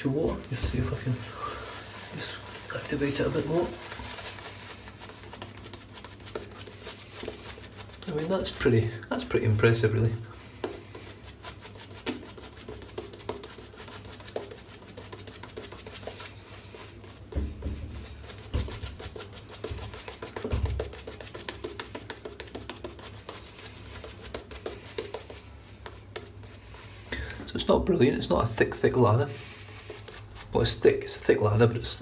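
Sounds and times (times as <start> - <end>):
wet crackling brush strokes: 0.0 - 32.0
dull thumps: 17.3 - 23.0.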